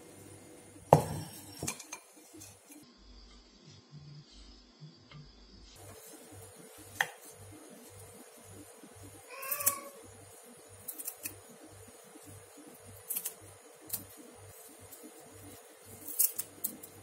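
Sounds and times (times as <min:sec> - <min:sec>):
cat meowing: 0:09.2 - 0:10.0
parsley sprigs snapping: 0:10.8 - 0:11.4, 0:13.0 - 0:14.2.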